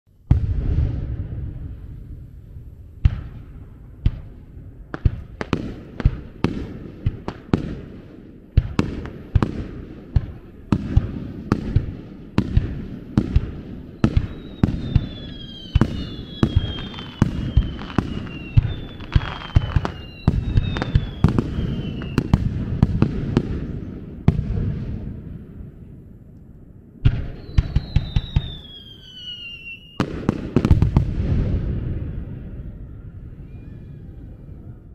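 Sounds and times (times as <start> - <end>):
fireworks bursting with bangs: 0.2 - 25.7, 27.0 - 33.6
falling firework whistles: 13.9 - 23.0, 27.1 - 34.8.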